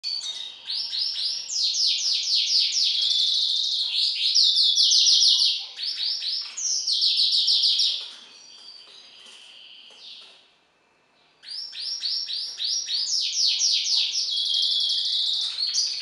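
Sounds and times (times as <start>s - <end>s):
bird twittering song: 0.0s - 10.5s, 11.2s - 16.0s.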